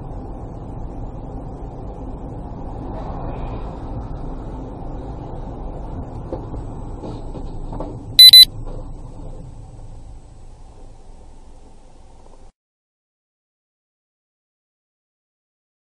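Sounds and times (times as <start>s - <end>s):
loud electronic beeps: 8.2s - 8.5s.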